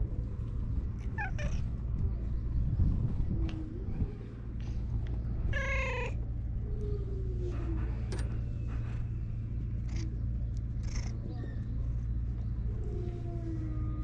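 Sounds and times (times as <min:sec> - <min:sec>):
low rumble: 0:00.0 - 0:14.0
cat meowing: 0:01.0 - 0:01.7, 0:05.5 - 0:06.2.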